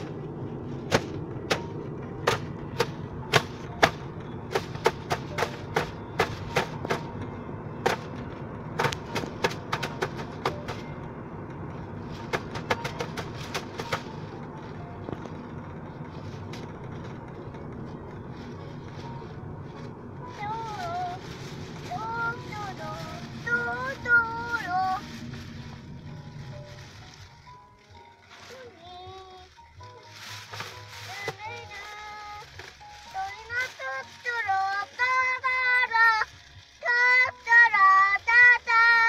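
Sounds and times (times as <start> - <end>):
car road and engine rumble: 0.0 - 39.0.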